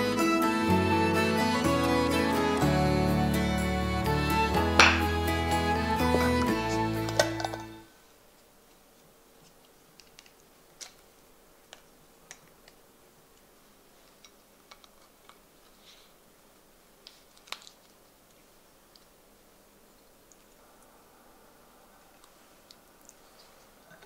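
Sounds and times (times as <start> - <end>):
glass containers and lids clinking: 4.8 - 5.1, 6.0 - 7.8.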